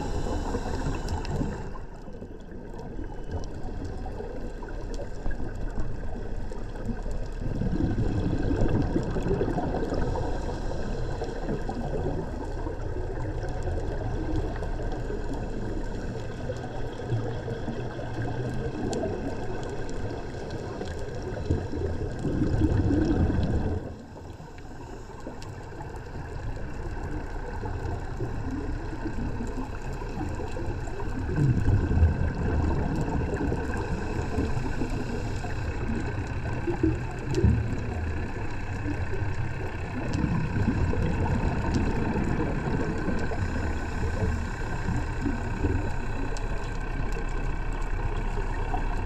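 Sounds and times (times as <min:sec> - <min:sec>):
underwater low rumble: 0:00.0 - 0:49.0
faint clicks: 0:00.6 - 0:07.9, 0:11.2 - 0:23.5, 0:32.2 - 0:49.0
diver exhaling bubbles: 0:06.8 - 0:25.4, 0:26.9 - 0:49.0.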